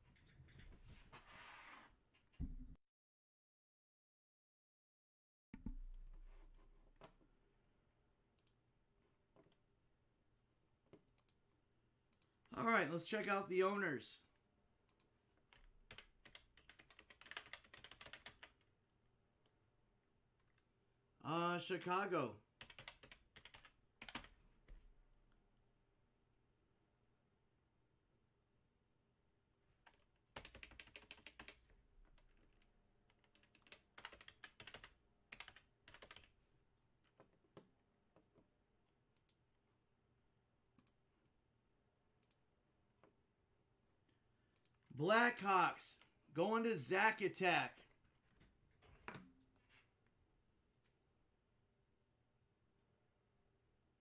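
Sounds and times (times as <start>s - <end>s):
computer keyboard typing: 15.0s - 18.6s, 22.6s - 24.3s, 29.8s - 31.6s, 33.1s - 36.3s.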